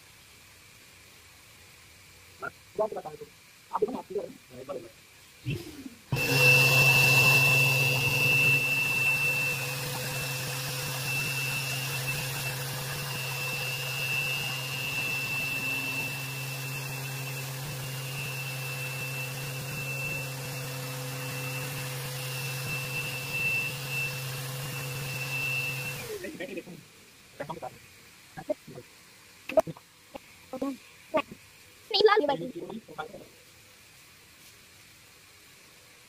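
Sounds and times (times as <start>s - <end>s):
orbital sander whining: 5.5s - 26.6s.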